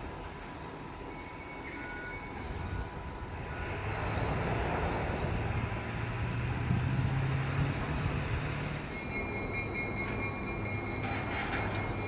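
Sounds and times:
diesel locomotive engine drone: 0.0s - 12.0s
train rumble and hiss: 0.0s - 12.0s.

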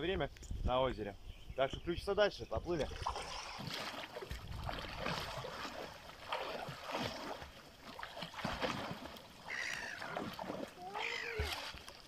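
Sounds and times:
water splashing from swimming: 2.8s - 12.0s.

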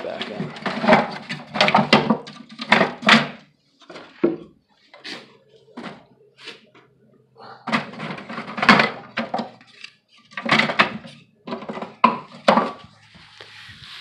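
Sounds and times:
wooden frames knocking together: 0.0s - 4.6s, 7.6s - 13.0s.

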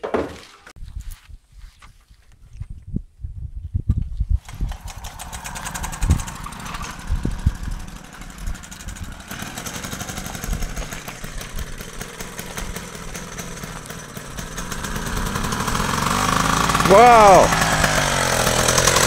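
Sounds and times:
two-stroke engine running: 4.4s - 19.0s.

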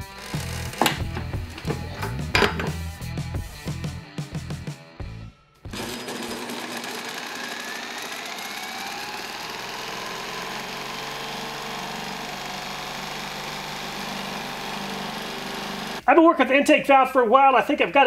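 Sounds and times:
cordless drill whirring: 5.7s - 16.0s.

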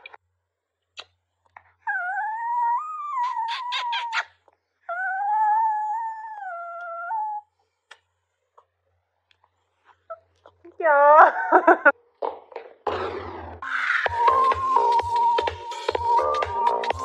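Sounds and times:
dog howling: 1.8s - 4.3s, 4.9s - 7.5s.

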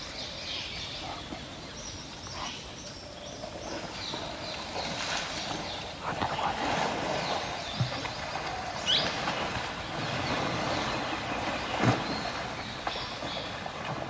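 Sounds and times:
elephant splashing in water: 3.5s - 14.0s
heavy splash: 4.7s - 14.0s.

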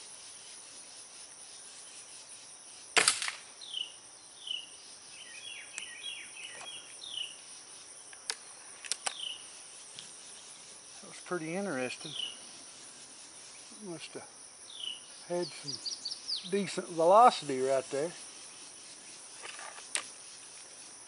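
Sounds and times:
insects droning and chirping: 0.0s - 21.0s
air rifle shot crack: 3.0s - 3.4s.

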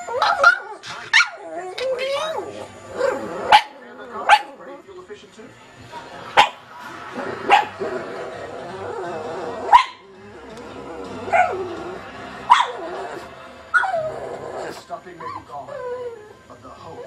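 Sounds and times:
television programme with music: 0.0s - 17.0s
dog barking: 0.2s - 1.4s, 3.0s - 4.5s, 6.4s - 6.6s, 7.5s - 7.8s, 9.7s - 10.0s, 11.3s - 11.6s, 12.5s - 12.8s.

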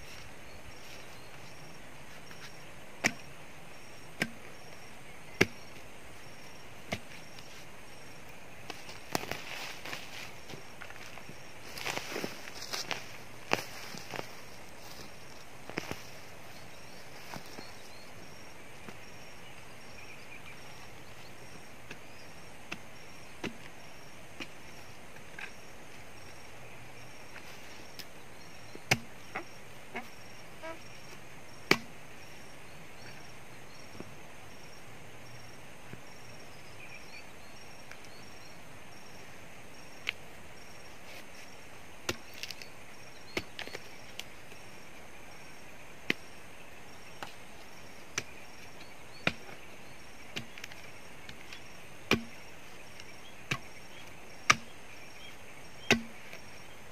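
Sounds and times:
hand tool chopping tree stump: 3.0s - 3.3s, 4.2s - 4.4s, 5.4s - 5.6s, 6.9s - 7.5s, 21.8s - 23.8s, 28.8s - 30.0s, 31.7s - 31.9s, 42.0s - 42.7s, 43.3s - 44.3s, 48.1s - 49.7s, 50.3s - 52.4s, 53.0s - 54.8s, 55.8s - 56.5s.

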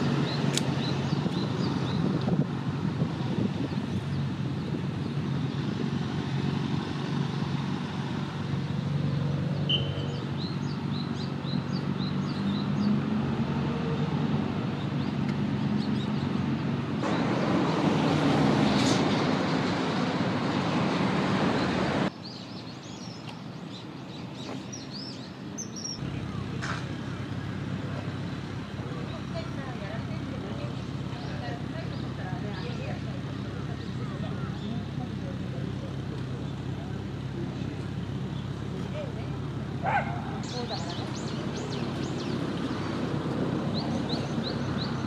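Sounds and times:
distant traffic rumble: 0.0s - 45.0s
small bird chirping: 22.2s - 26.0s.

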